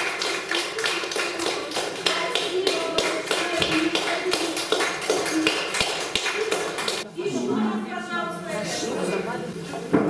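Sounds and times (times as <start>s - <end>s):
people clapping in time: 0.0s - 7.0s.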